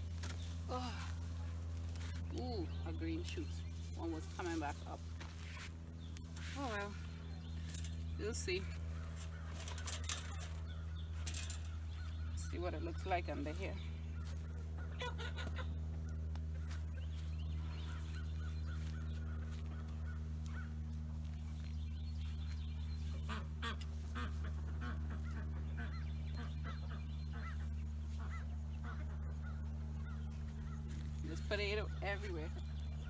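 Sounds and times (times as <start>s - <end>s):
low mechanical hum: 0.0s - 33.0s
bird calls: 1.9s - 33.0s.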